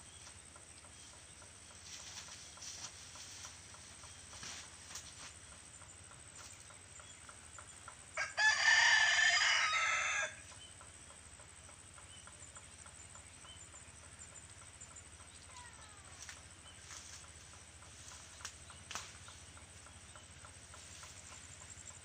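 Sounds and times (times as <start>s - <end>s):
rooster crowing: 8.2s - 10.5s.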